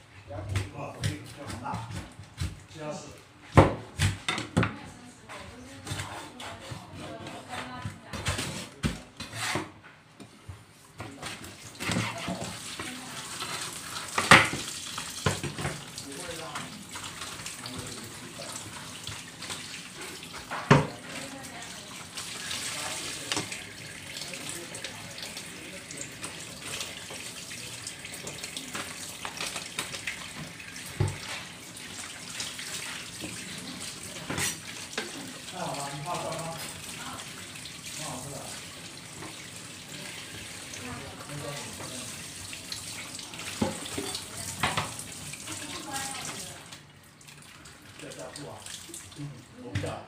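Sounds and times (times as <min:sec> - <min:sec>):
tap running into sink: 0:11.8 - 0:16.7, 0:20.0 - 0:21.3, 0:23.2 - 0:23.6, 0:28.1 - 0:31.5, 0:43.5 - 0:45.2.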